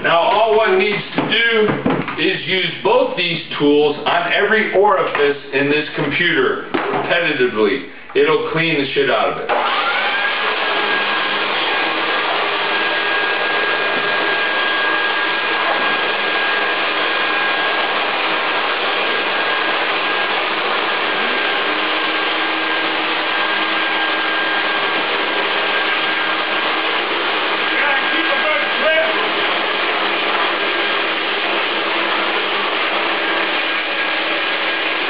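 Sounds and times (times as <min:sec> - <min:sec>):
leaf blower and shop vac whining: 0:09.5 - 0:35.0.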